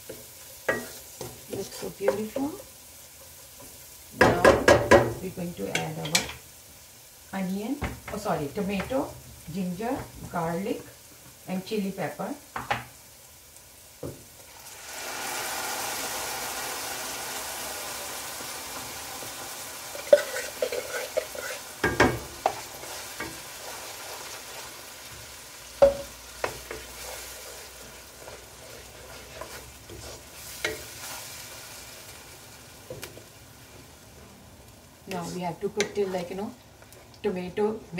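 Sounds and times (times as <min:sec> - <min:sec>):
paste sizzling in hot oil: 0:00.0 - 0:37.1
wooden spatula scraping pan: 0:19.9 - 0:21.8, 0:26.4 - 0:31.3.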